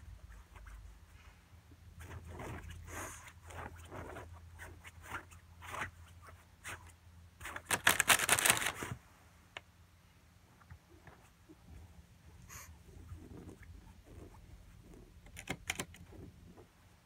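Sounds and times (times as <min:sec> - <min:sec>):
plastic bag crinkling: 0:07.5 - 0:09.0.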